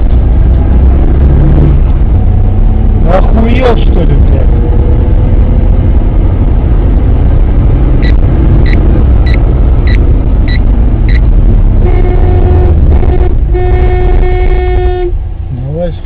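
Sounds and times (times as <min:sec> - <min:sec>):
car driving rumble: 0:00.0 - 0:16.0
short high electronic beeps: 0:08.0 - 0:11.2
car horn: 0:11.8 - 0:15.2.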